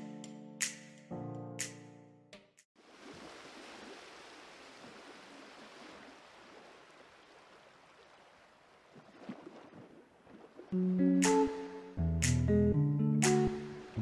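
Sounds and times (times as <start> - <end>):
background music: 0.0 - 2.6, 10.8 - 14.0.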